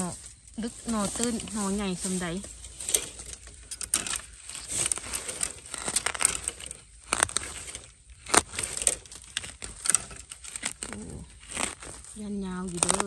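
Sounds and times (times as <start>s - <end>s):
soil and leaves crackling: 0.0s - 13.0s
digging tool chopping soil: 2.8s - 13.0s.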